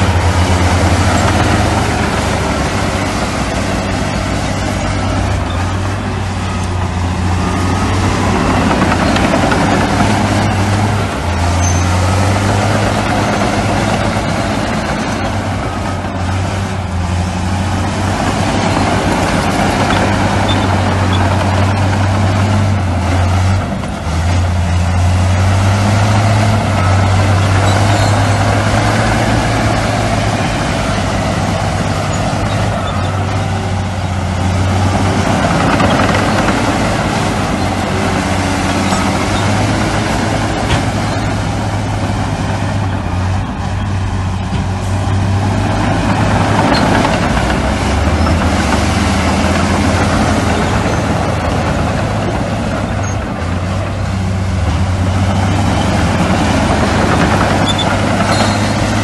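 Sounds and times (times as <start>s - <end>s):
heavy diesel machinery running: 0.0s - 59.0s.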